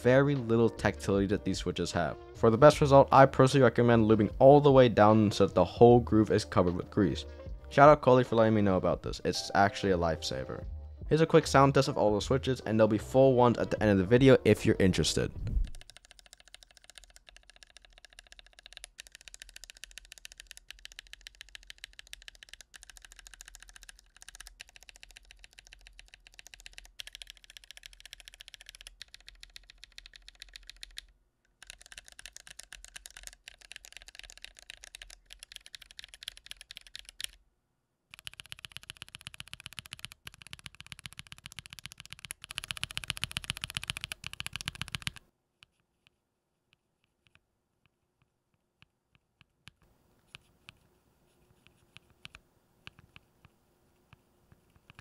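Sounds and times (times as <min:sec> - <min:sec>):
mechanical keyboard key clicks: 0:15.6 - 0:37.4, 0:38.1 - 0:45.2.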